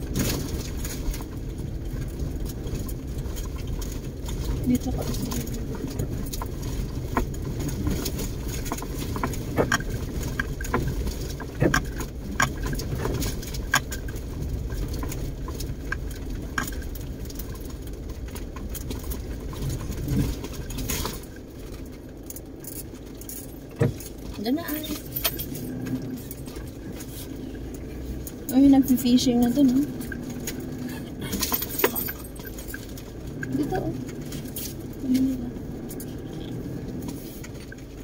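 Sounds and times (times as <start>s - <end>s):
engine and road rumble: 0.0s - 38.0s
vehicle body rattles and knocks: 0.0s - 38.0s.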